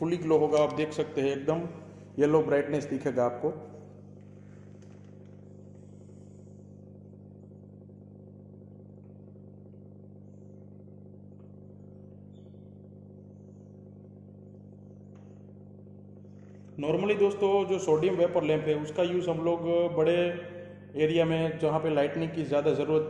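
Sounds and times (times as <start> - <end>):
lamp ballast mains hum: 0.0 - 23.0.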